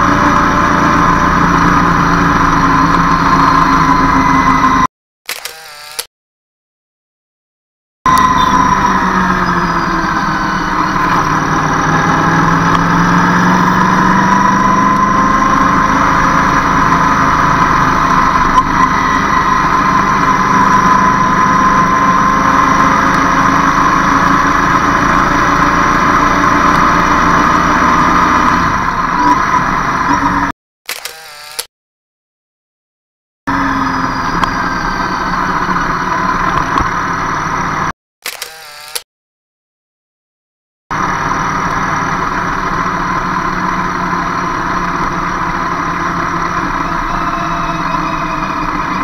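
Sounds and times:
road traffic engines: 0.0 - 4.9, 8.1 - 31.6, 33.5 - 37.9, 40.9 - 49.0
pitched engine tone: 0.0 - 6.0, 8.1 - 31.6, 33.5 - 39.0, 40.9 - 49.0.

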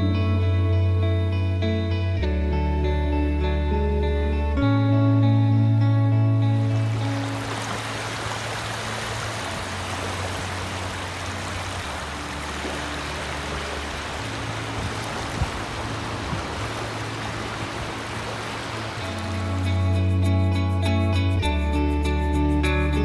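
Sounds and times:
small waves washing on sand: 6.6 - 19.9.

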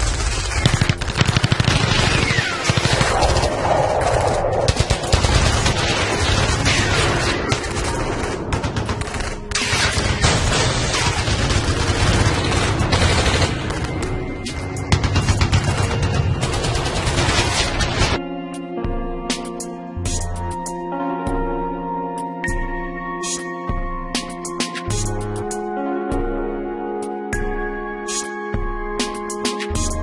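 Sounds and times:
rapid gunfire: 0.0 - 18.2.

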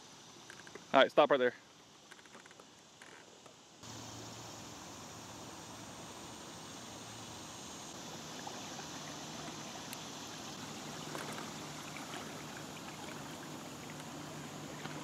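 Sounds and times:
water splashing around floats: 8.0 - 15.0.

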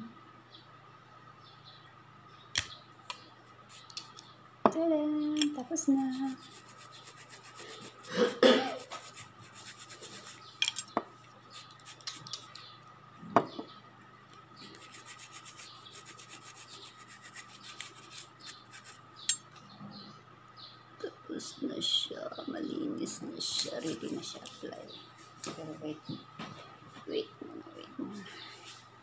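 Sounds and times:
rubbing and scratching of fingernails: 3.7 - 4.3, 5.4 - 10.6, 11.5 - 12.7, 14.6 - 19.0, 23.4 - 25.5.

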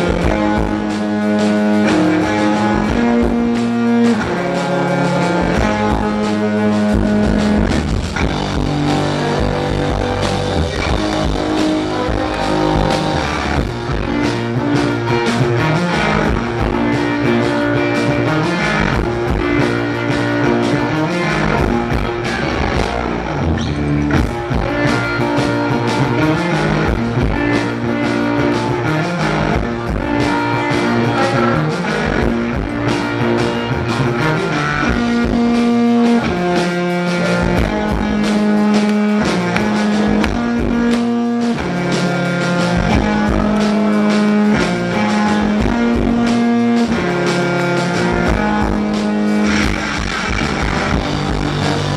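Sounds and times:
drum kit: 0.0 - 51.9
electric guitars playing riff: 0.0 - 51.9.

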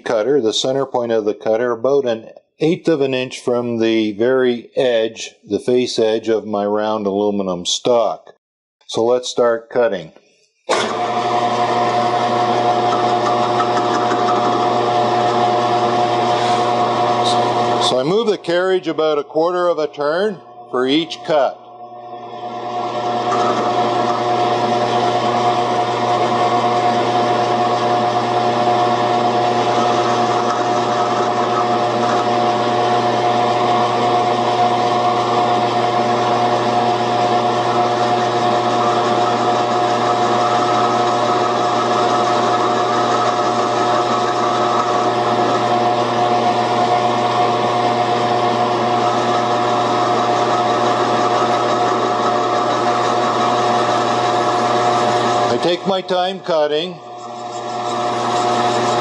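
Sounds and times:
cutter cutting aluminium: 10.7 - 18.8, 22.3 - 59.0
metal lathe motor whine: 10.7 - 59.0.

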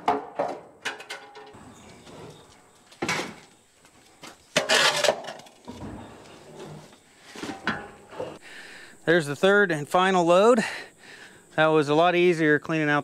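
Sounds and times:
shovel scraping across floor: 4.6 - 8.4.

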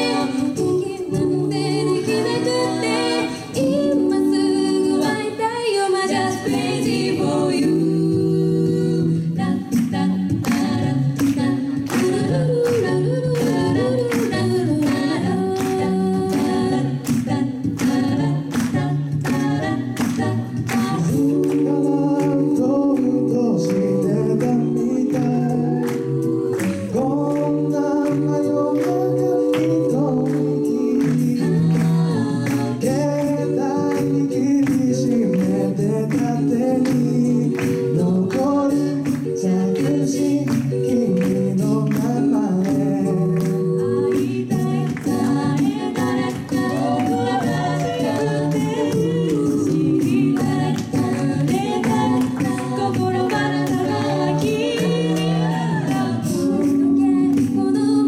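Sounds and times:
a cappella group singing: 0.0 - 58.0
vocal percussion beat: 0.0 - 58.0.

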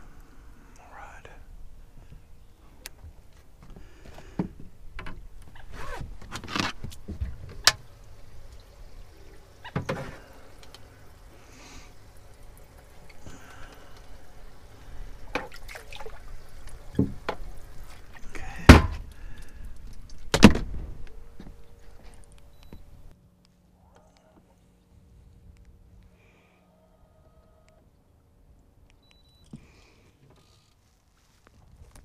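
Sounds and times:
water sloshing: 1.8 - 23.1
knocks and thunks on fiberglass: 18.7 - 19.1, 20.3 - 21.0.

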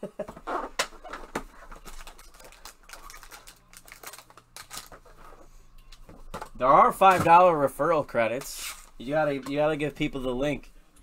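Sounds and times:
plastic wrap and cardboard crinkling: 1.0 - 5.4.

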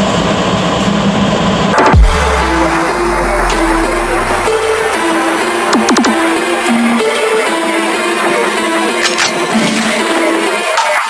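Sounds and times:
electronic music with synth notes: 1.7 - 11.0
quick falling synth sweeps: 1.8 - 7.1.

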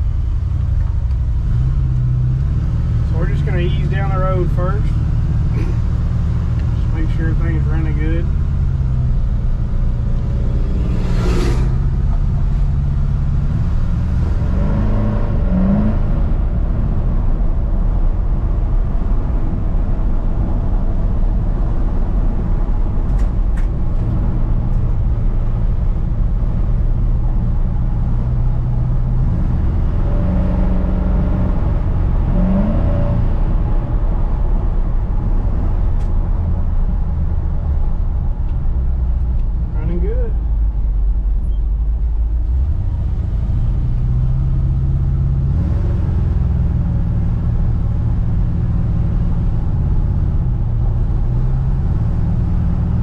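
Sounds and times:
pickup engine running: 0.0 - 29.9
truck passing with a whoosh: 8.3 - 18.6.

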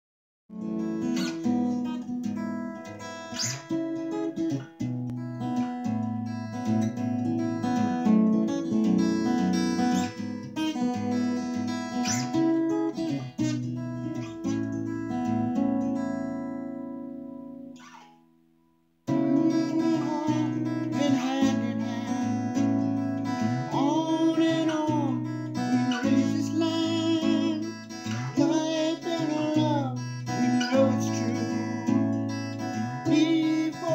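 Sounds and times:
acoustic guitar playing: 0.5 - 33.9
man singing: 19.1 - 33.9.

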